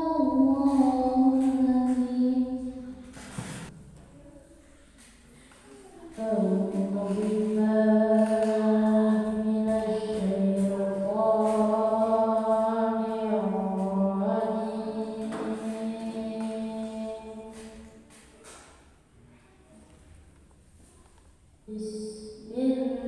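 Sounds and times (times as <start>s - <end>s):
boy chanting melodically: 0.0s - 3.4s, 5.5s - 18.2s, 21.7s - 23.0s.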